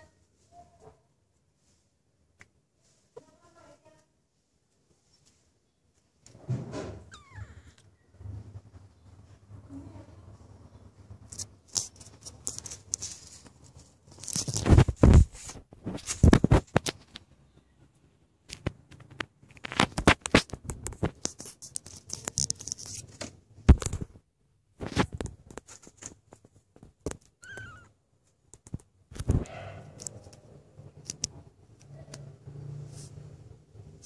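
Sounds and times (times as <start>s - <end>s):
kitten mewing: 7.0s - 8.0s, 27.4s - 28.0s.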